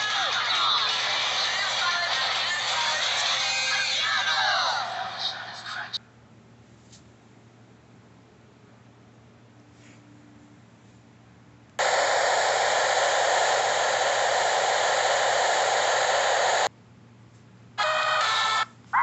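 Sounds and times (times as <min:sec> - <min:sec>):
tv static hiss: 0:00.0 - 0:05.1, 0:11.8 - 0:16.7, 0:17.8 - 0:19.0.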